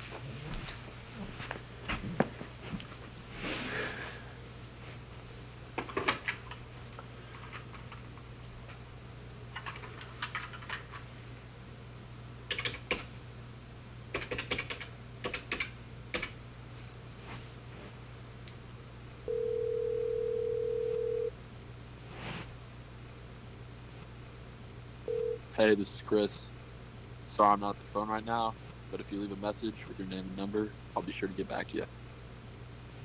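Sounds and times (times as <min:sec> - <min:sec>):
telephone ringback tone: 0:19.3 - 0:21.3, 0:25.1 - 0:25.4.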